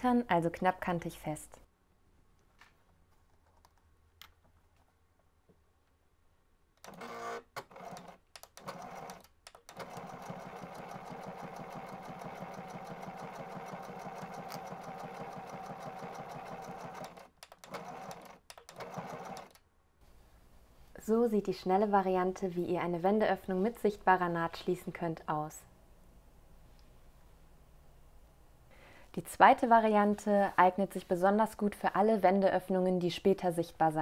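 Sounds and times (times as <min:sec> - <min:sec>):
sewing machine stitching: 0:06.8 - 0:19.6.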